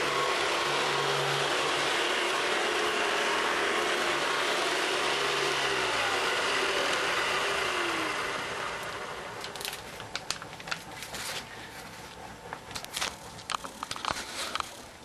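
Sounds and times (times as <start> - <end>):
vacuum cleaner running on carpet: 0.0 - 9.8
vacuum motor spinning down: 0.0 - 11.4.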